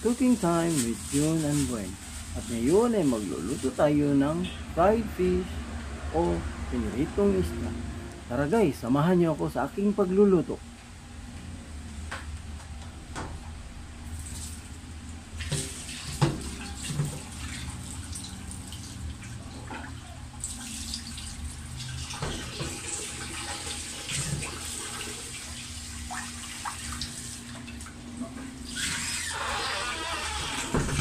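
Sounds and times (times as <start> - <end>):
tap water splashing into basin: 15.4 - 28.0.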